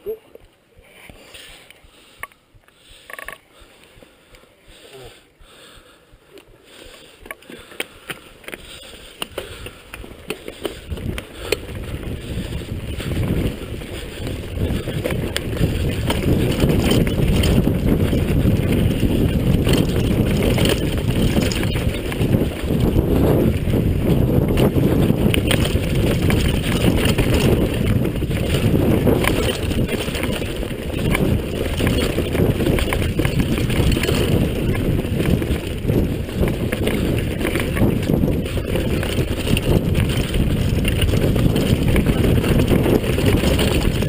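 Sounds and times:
bike clicks and knocks: 7.2 - 12.1, 13.0 - 23.0, 24.4 - 44.0
tyres rumbling over dirt: 8.6 - 44.0
wind on microphone: 10.6 - 44.0.

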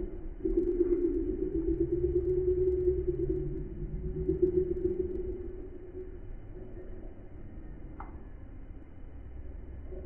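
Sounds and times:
low rumble: 0.0 - 7.6
low wavering hum: 0.0 - 10.0.

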